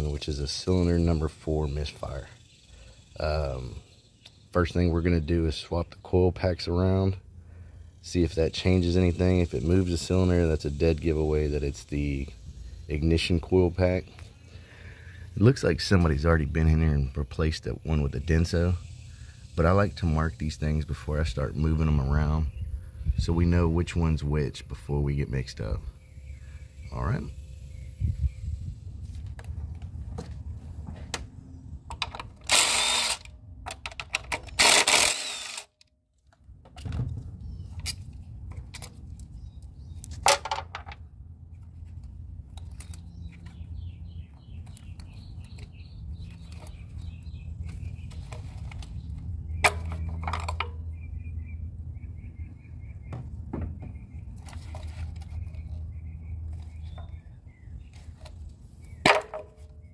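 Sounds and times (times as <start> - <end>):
power tool bursts: 32.4 - 33.3, 34.5 - 35.7.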